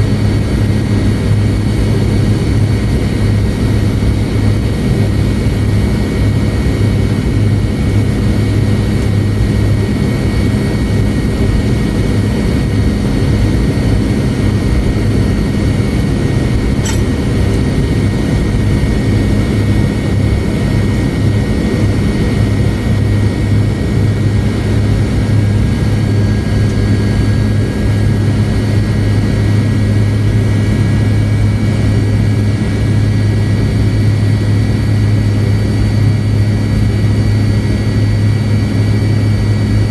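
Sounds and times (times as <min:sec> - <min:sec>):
aircraft cabin engine hum: 0:00.0 - 0:39.9
high whine: 0:12.8 - 0:32.9.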